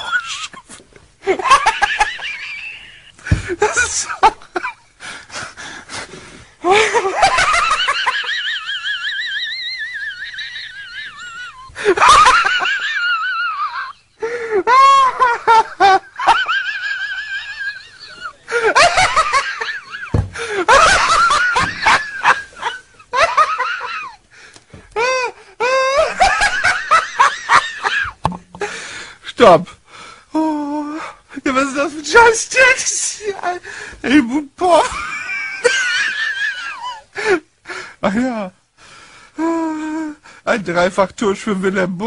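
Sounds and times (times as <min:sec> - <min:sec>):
man laughing hysterically: 0:00.0 - 0:04.9, 0:06.6 - 0:24.2, 0:24.9 - 0:28.8, 0:34.6 - 0:37.5.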